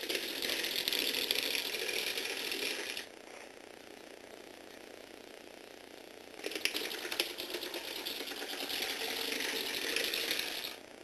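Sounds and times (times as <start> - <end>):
motor and gears whirring: 0.0 - 3.1, 6.4 - 10.8
toy car wheels clattering on floor: 0.0 - 3.1, 6.4 - 10.8.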